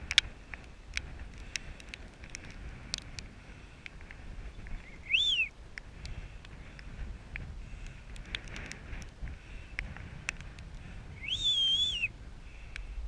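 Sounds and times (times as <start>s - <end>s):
rising and falling whistle: 4.8s - 5.5s, 11.2s - 12.1s.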